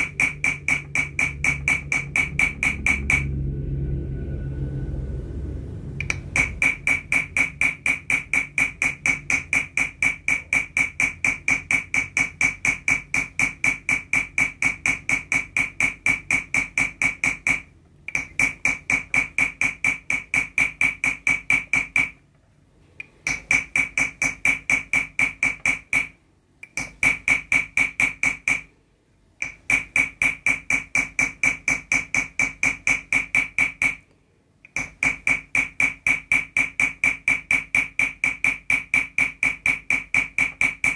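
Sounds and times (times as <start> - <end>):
hammer tapping metal tool: 0.0 - 3.4, 6.0 - 22.2, 23.2 - 28.7, 29.4 - 40.9.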